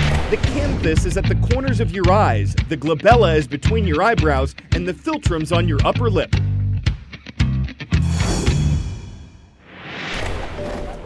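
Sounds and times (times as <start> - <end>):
rising whoosh: 8.0 - 10.6.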